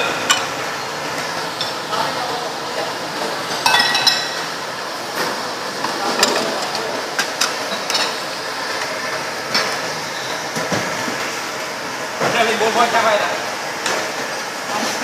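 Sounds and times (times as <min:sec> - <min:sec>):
ceramic bowls clinking: 0:00.0 - 0:00.6, 0:03.5 - 0:04.5.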